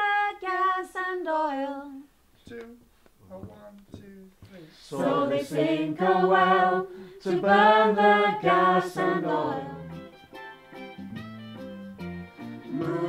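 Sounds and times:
women singing together: 0:04.8 - 0:09.9, 0:12.7 - 0:13.0.

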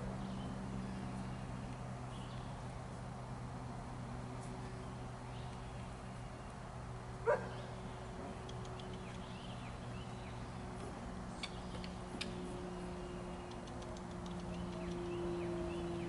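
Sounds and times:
steady low hum: 0:00.0 - 0:16.0
dog barking: 0:07.2 - 0:07.6
faint clicks: 0:13.4 - 0:15.0.

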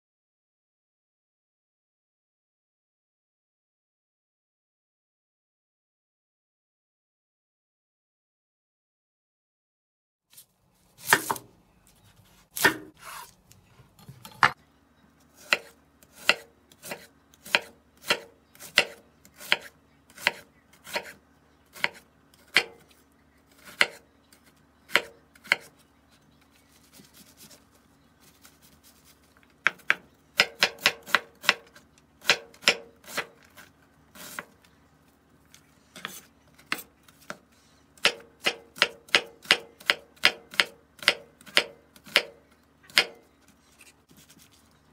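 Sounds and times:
knife chopping on cutting board: 0:11.0 - 0:11.5, 0:12.6 - 0:13.3, 0:15.4 - 0:22.8, 0:23.6 - 0:24.0, 0:24.9 - 0:25.7, 0:29.6 - 0:33.4, 0:38.0 - 0:43.2.

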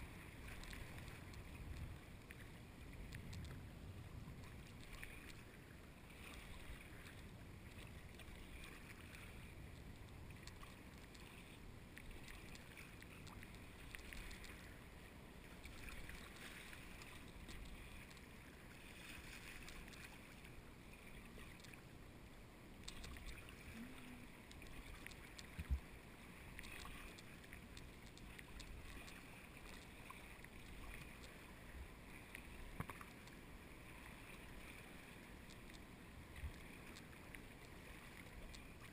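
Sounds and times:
paddle splashing water: 0:00.0 - 0:03.6, 0:04.4 - 0:21.8.

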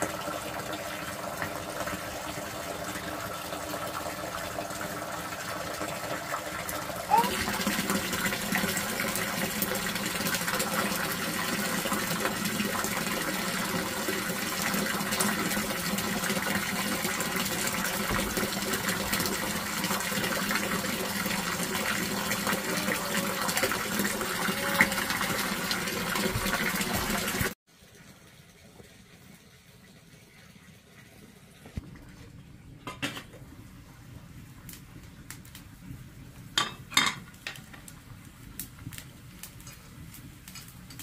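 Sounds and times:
water rushing: 0:07.0 - 0:27.6.

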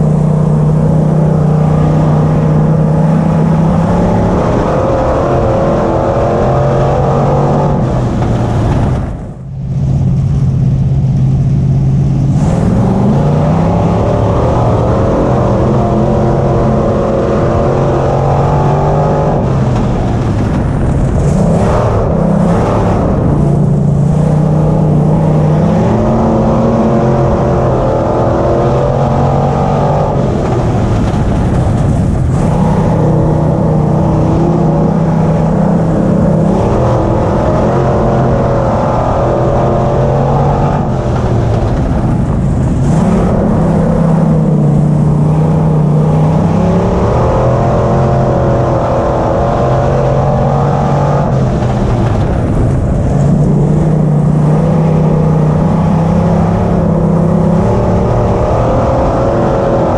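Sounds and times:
race car engine at part throttle: 0:00.0 - 0:59.9.

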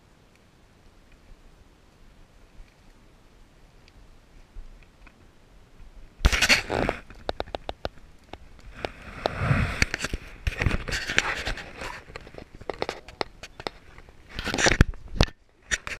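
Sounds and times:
hands scraping camera body: 0:06.3 - 0:07.9, 0:08.7 - 0:16.0.

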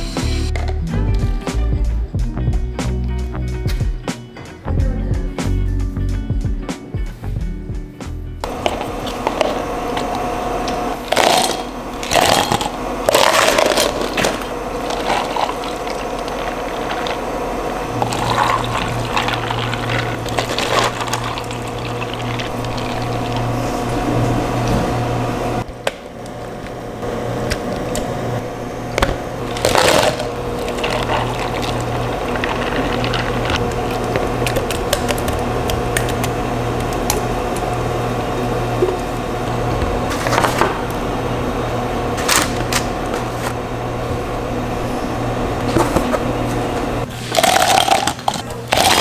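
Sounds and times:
machine hum: 0:08.4 - 0:49.0
cups and ice clattering: 0:18.0 - 0:23.5, 0:47.3 - 0:49.0
drink poured into plastic cup: 0:18.0 - 0:23.5.

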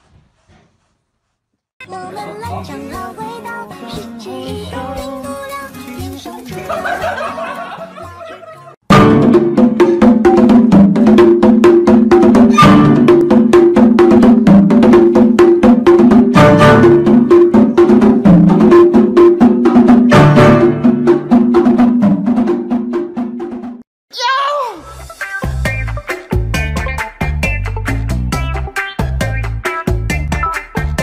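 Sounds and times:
fast tune of struck notes: 0:08.9 - 0:22.5.

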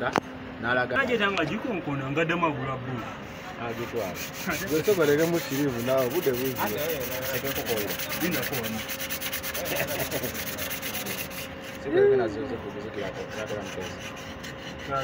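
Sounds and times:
hand rubbing metal gasket: 0:03.1 - 0:12.0, 0:12.8 - 0:15.0.

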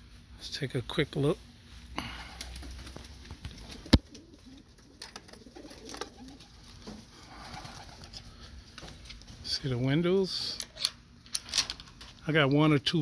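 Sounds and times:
pigeons cooing: 0:02.0 - 0:08.6.

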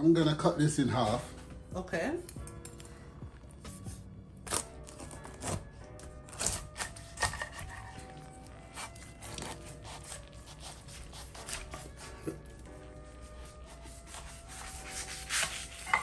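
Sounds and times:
soft background music: 0:00.0 - 0:16.0
knife crunching through pineapple rind: 0:03.7 - 0:12.6.

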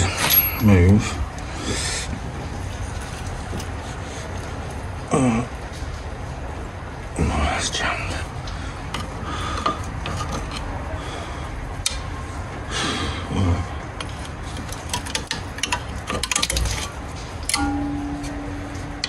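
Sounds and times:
hand tools clicking and scraping metal: 0:00.0 - 0:01.8, 0:02.7 - 0:04.3, 0:08.4 - 0:10.9, 0:13.9 - 0:19.0.

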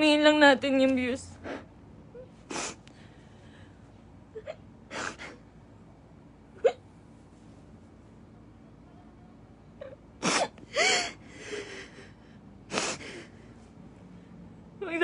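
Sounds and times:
noisy breaths: 0:02.4 - 0:04.1, 0:10.2 - 0:14.6.

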